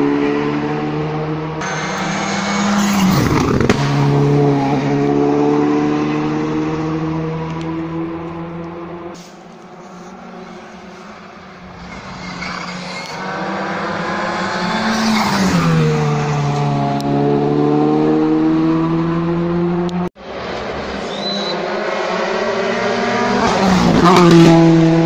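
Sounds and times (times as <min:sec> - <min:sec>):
rally car engine passing: 0:00.0 - 0:25.0.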